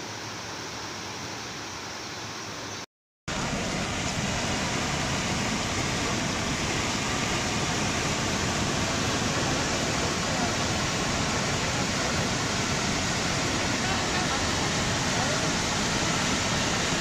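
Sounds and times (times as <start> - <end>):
water rushing over spillway: 3.3 - 17.0.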